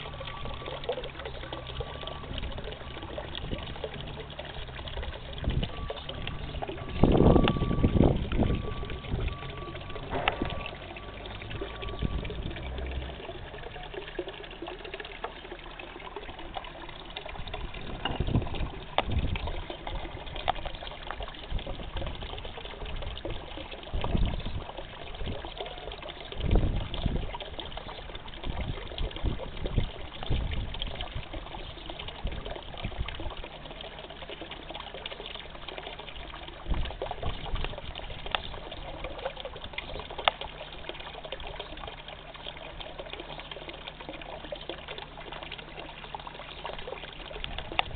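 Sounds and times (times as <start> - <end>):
water trickling and splashing: 0.0 - 47.9
low rumbles on microphone: 3.3 - 13.7, 17.3 - 20.6.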